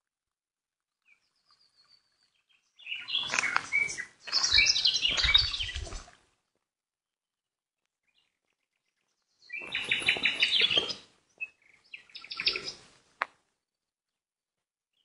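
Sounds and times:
songbirds chirping: 1.0s - 6.6s, 8.0s - 13.9s.

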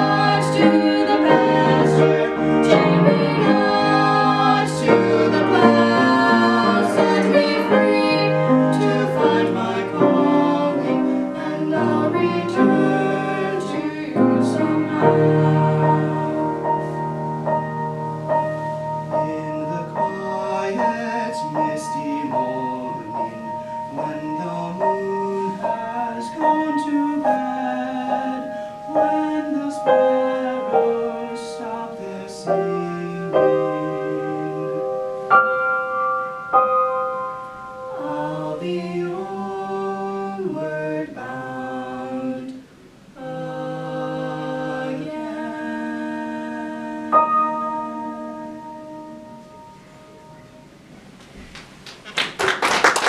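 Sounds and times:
man singing: 0.0s - 15.6s, 19.1s - 34.9s, 38.0s - 42.6s
woman singing: 0.0s - 16.6s.

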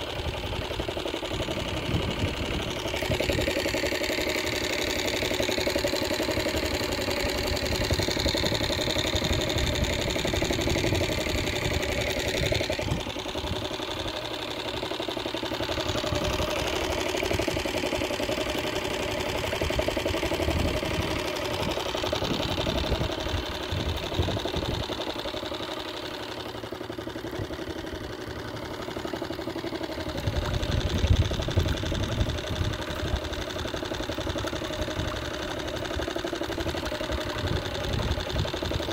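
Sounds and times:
small motor humming: 0.0s - 38.9s
wind buffeting microphone: 22.1s - 24.9s, 30.2s - 33.2s.

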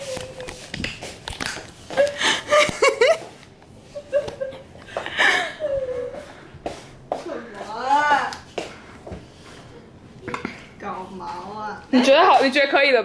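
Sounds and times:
people laughing and giggling: 2.0s - 6.4s.

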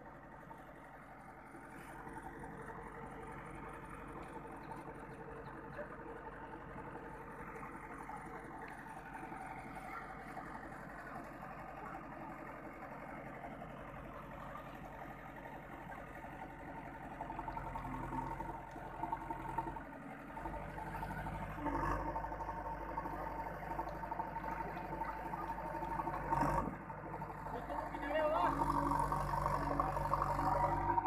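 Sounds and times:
diesel engine running: 0.0s - 31.0s
faint voices: 9.3s - 13.6s, 21.4s - 31.0s.

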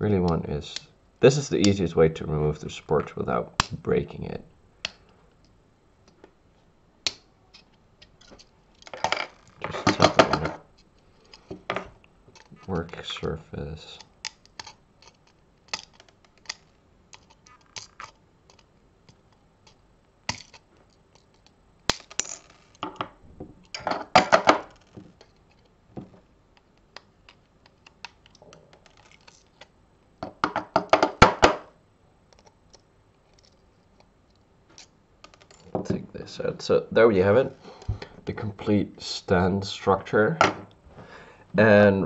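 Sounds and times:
plastic parts clattering on table: 7.6s - 10.6s.

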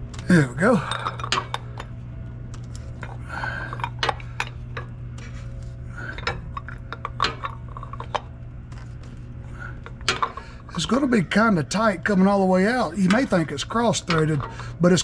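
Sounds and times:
steady low hum: 0.0s - 15.0s
wrench clinking on metal cap: 6.2s - 8.2s, 10.0s - 10.9s, 13.0s - 14.7s.

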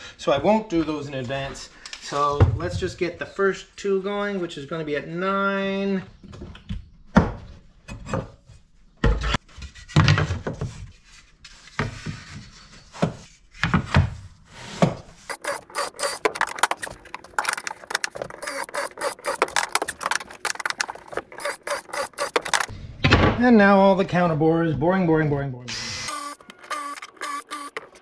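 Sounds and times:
cordless drill boring into wood: 15.3s - 22.7s, 25.7s - 28.0s.

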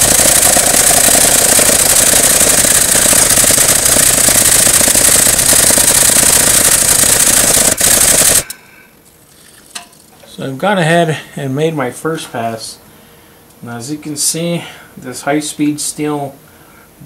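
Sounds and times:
air-powered tool rattling: 0.0s - 8.7s.

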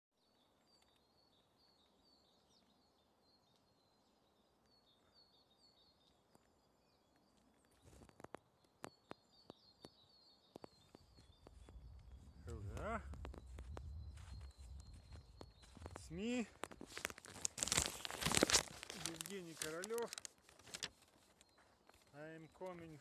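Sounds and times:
songbirds chirping: 0.2s - 23.0s
footsteps in snow: 10.6s - 23.0s.

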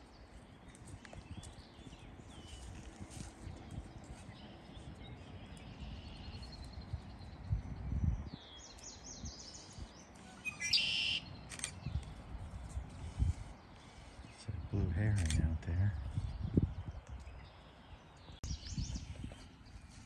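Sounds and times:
wild birds chirping and calling: 8.3s - 18.4s.

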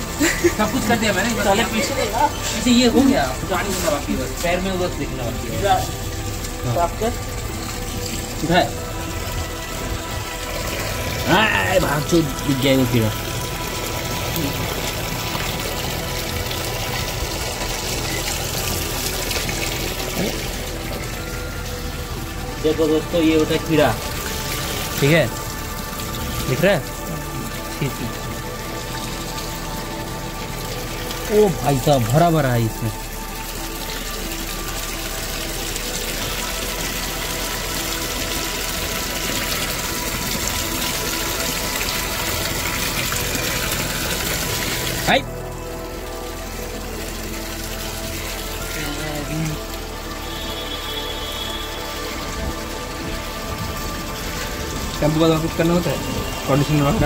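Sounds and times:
water running: 0.0s - 57.0s.

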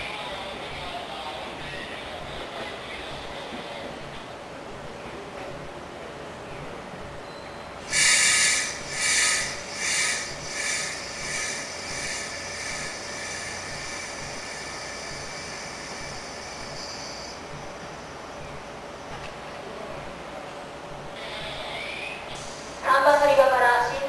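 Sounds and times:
faint ringing tones: 6.4s - 23.6s
compressed air hissing from train: 7.8s - 18.0s.

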